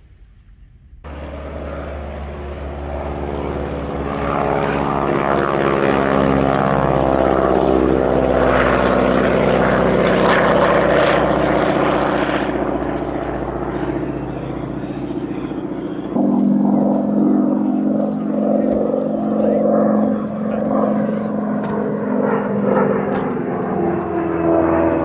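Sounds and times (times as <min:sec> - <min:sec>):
propeller plane engine drone: 0:01.0 - 0:25.0.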